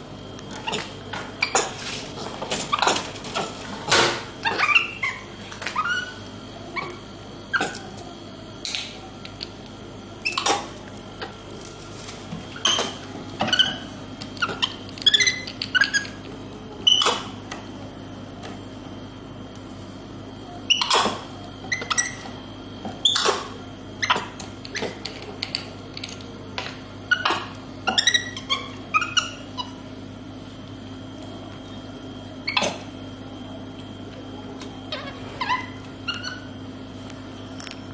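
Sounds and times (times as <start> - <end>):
steady low hum: 0.0 - 37.9.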